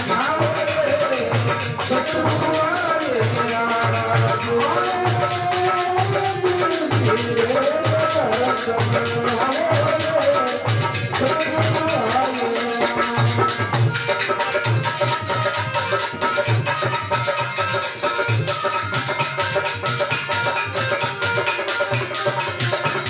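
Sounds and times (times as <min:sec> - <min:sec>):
person singing melody: 0:00.0 - 0:16.5
hand drum beating: 0:00.0 - 0:23.0
harmonium: 0:00.0 - 0:23.0
rattling percussion: 0:00.0 - 0:23.0.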